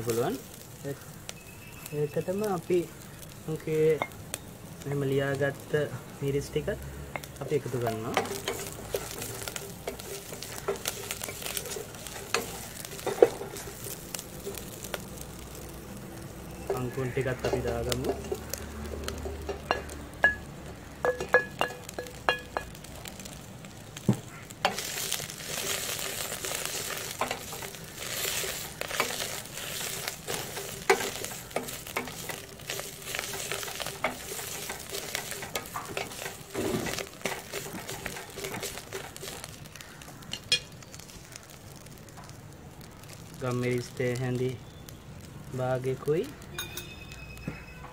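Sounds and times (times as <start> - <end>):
leaves sizzling in hot oil: 0.0 - 47.9
spatula scraping pot: 8.2 - 14.6, 24.6 - 39.6.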